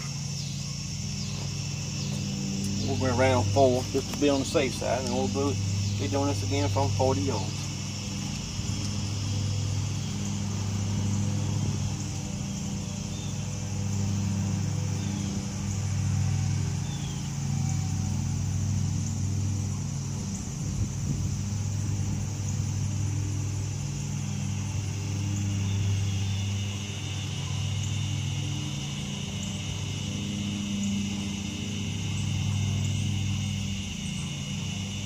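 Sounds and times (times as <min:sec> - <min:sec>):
high-pitched hiss: 0:00.0 - 0:35.0
low engine-like hum: 0:00.0 - 0:35.0.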